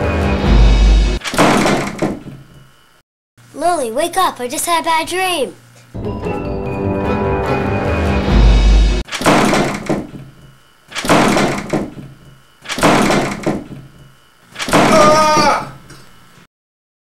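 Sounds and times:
loud thuds: 1.2s - 2.4s, 9.1s - 10.3s, 11.0s - 13.8s.

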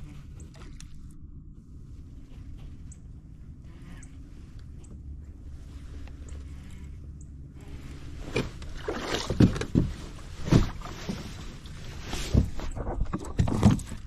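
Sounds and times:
water sloshing: 7.7s - 14.0s.

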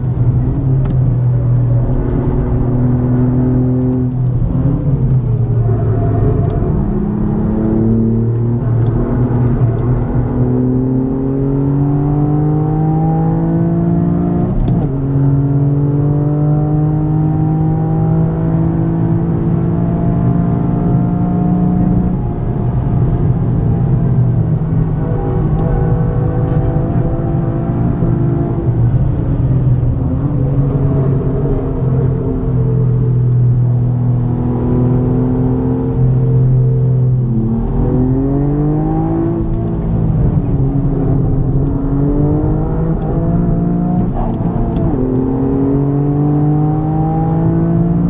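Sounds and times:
car engine at full throttle: 0.0s - 48.0s.

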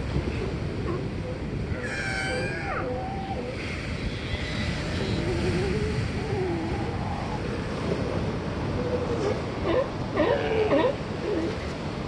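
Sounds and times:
ocean surf washing: 0.0s - 12.0s
sea lions barking: 0.6s - 11.6s.

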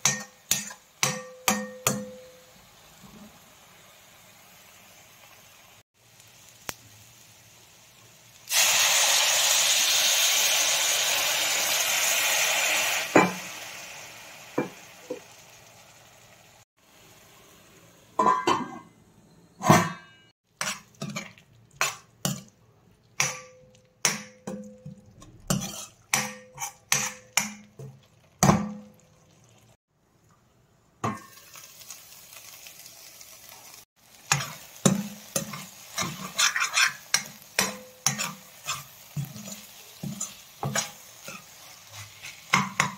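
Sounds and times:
spoon tapping and scraping pan: 0.0s - 2.4s, 19.6s - 29.0s, 34.3s - 42.9s
vegetables sizzling in a pan: 0.0s - 18.2s, 20.5s - 24.3s, 31.0s - 42.9s.

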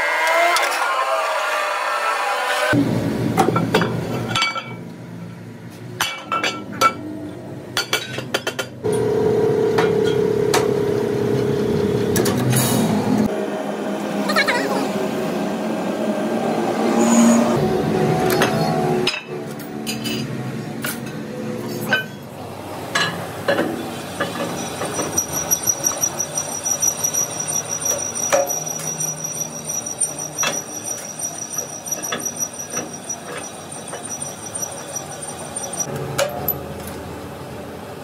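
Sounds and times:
high-pitched machine whine: 8.9s - 20.2s, 23.5s - 36.6s
steel parts clinking and knocking: 24.2s - 36.6s.

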